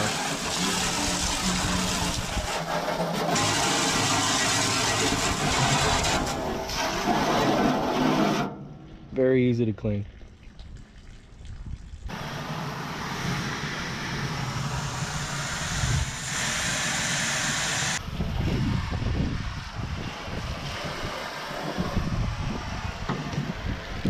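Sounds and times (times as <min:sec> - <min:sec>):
hose spraying water on metal: 0:00.0 - 0:08.5, 0:12.1 - 0:24.0.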